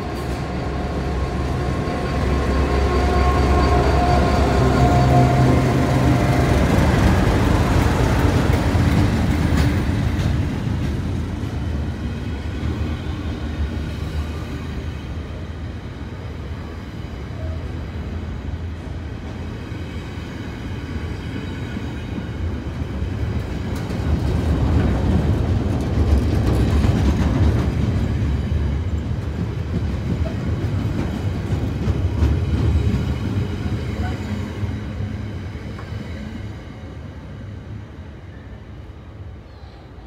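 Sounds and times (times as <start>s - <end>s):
train wagons rolling on rails: 0.0s - 39.2s.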